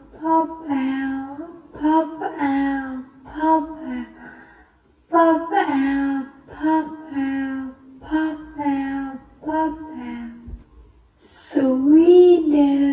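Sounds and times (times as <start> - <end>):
high-pitched voice chanting: 5.1 - 10.6.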